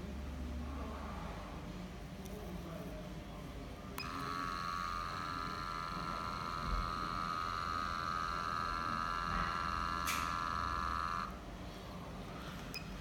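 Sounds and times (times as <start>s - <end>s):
small pump whining: 4.0s - 11.6s.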